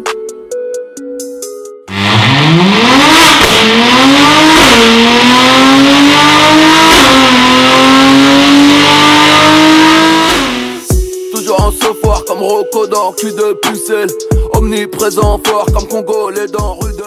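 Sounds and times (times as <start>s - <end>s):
car engine revving at full throttle: 1.9s - 10.9s.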